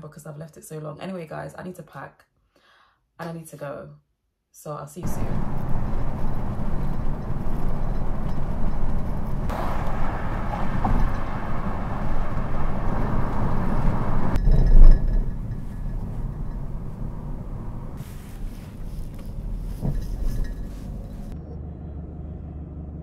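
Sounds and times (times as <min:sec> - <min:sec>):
car road and engine noise: 0:05.0 - 0:23.0.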